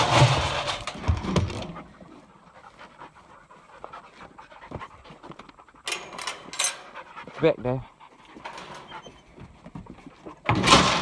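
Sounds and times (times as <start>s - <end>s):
dog panting: 1.7s - 10.5s.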